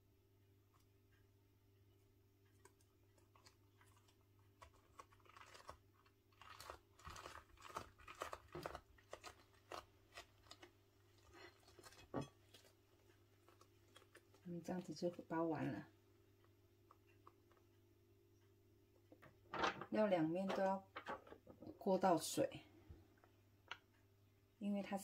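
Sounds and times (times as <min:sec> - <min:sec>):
rice paper crackling: 0:02.5 - 0:15.8.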